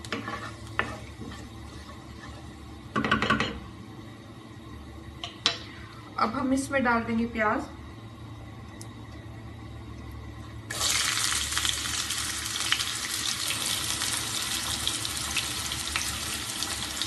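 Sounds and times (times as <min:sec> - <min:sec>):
onions sizzling in hot oil: 0:10.7 - 0:17.0.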